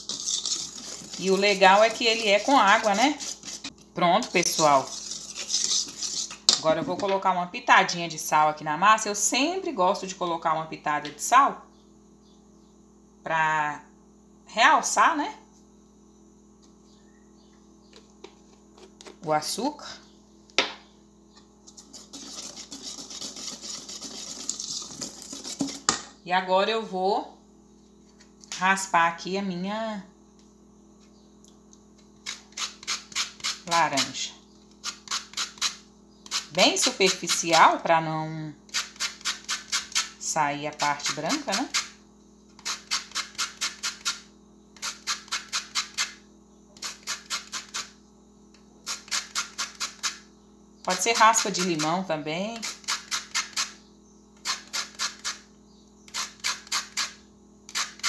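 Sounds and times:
orange rind rasping on grater: 0.0 - 6.5, 21.8 - 25.9, 32.2 - 34.1, 34.8 - 37.6
sugar pouring into metal bowl: 0.0 - 6.5, 21.9 - 25.9.

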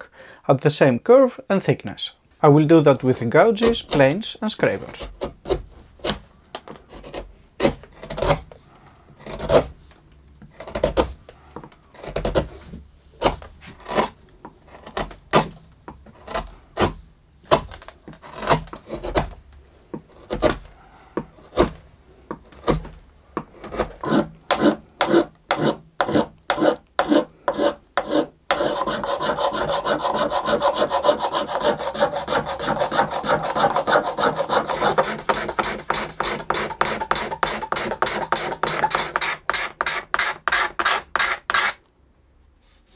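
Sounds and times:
hand gouge paring wood: 13.2 - 41.8
plane shaving wood: 23.4 - 41.8.

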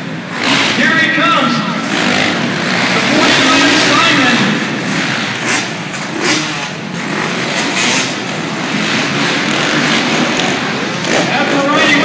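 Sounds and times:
dirt bike engines revving: 0.0 - 12.0
steady noisy background: 0.0 - 12.0.

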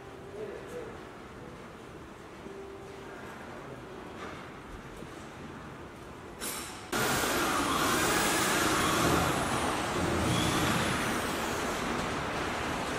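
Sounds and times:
laser cutting machine rushing: 7.0 - 12.9.

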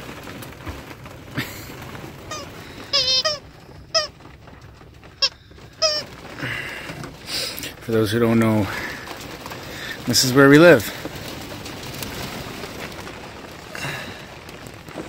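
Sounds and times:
squeaky dog toy squeaking: 2.3 - 4.2, 5.2 - 6.1.

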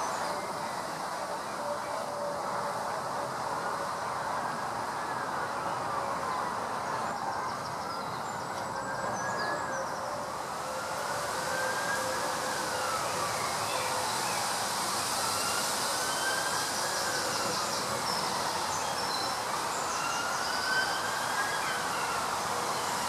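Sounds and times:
wind rustling through leaves: 0.0 - 23.0.

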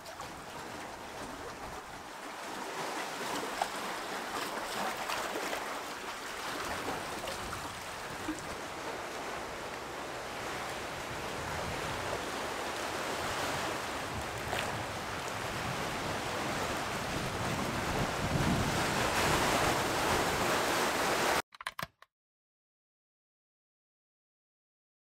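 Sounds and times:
surf washing on rocky shore: 0.0 - 21.4
wind on microphone: 10.4 - 20.7.

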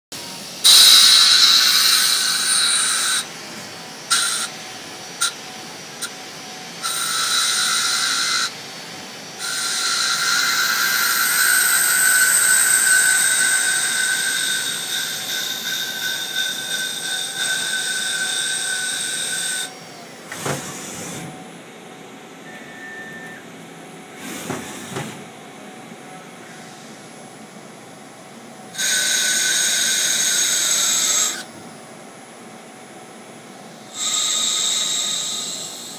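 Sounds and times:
high-pitched whine of cutter in wood: 0.6 - 3.3, 4.0 - 4.6, 6.8 - 8.6, 9.3 - 21.0, 22.4 - 23.4.

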